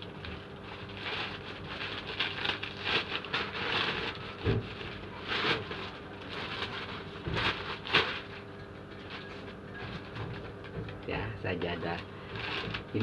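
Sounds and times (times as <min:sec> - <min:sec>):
plastic packaging crinkling: 0:00.0 - 0:13.0.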